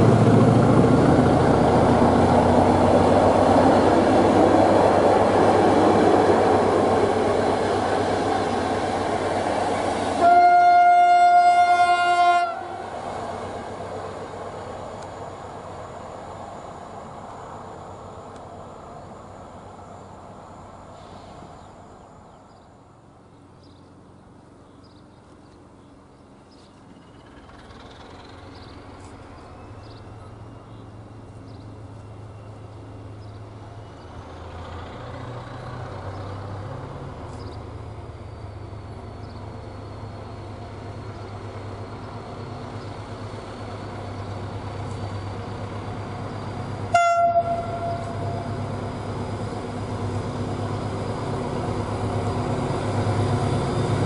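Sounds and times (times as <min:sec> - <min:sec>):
diesel locomotive engine hum: 0:00.0 - 0:54.0
train horn blast: 0:10.2 - 0:12.9, 0:46.9 - 0:48.6.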